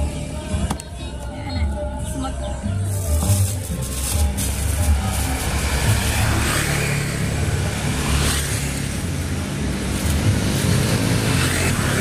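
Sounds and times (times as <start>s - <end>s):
road noise hiss: 2.9s - 12.0s
motorcycle engine running: 3.9s - 12.0s.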